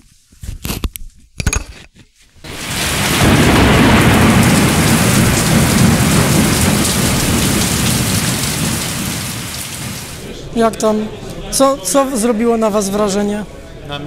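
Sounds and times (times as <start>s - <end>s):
heavy rain: 2.5s - 10.3s
thunder rumbling: 2.5s - 10.3s.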